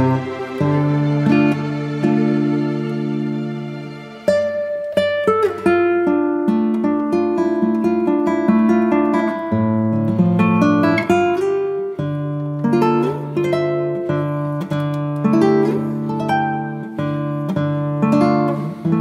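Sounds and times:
acoustic guitar music: 0.0s - 19.0s.

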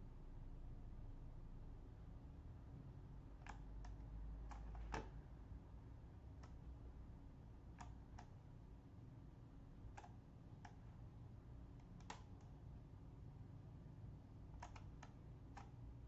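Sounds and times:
faint low hum: 0.0s - 16.0s
computer mouse clicks: 3.4s - 5.2s, 6.4s - 6.6s, 7.7s - 8.4s, 9.9s - 10.9s, 11.7s - 12.6s, 14.5s - 15.8s.

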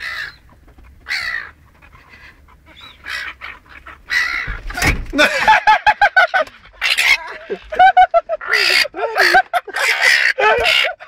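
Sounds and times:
gull squawking alarm calls: 0.0s - 4.9s, 6.6s - 7.7s, 8.4s - 11.0s.

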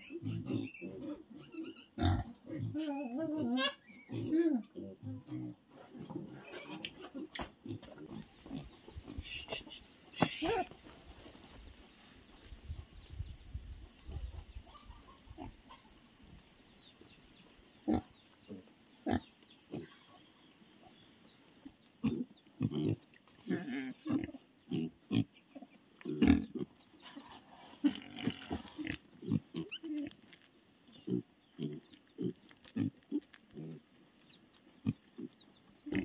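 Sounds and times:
pigs grunting: 0.0s - 10.8s, 17.8s - 20.2s, 22.0s - 30.2s, 30.9s - 33.9s, 34.7s - 36.0s.

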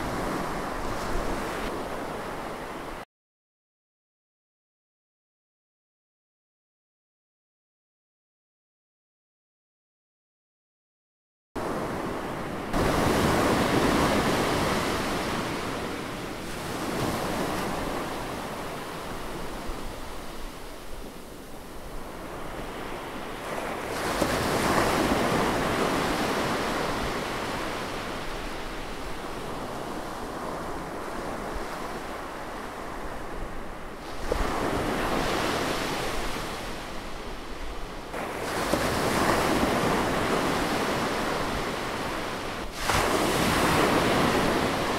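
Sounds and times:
ocean waves breaking: 11.6s - 44.9s.

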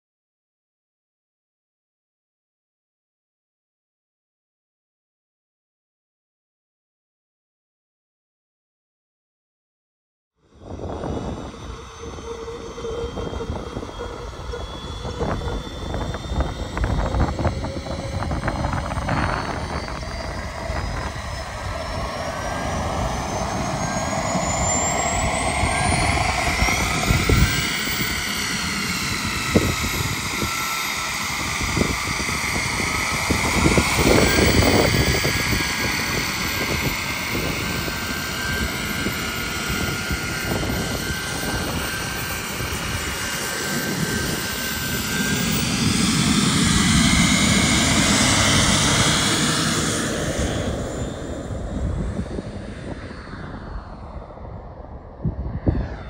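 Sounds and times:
model turboprop turbine whine: 10.4s - 56.0s
propeller noise: 10.4s - 56.0s.

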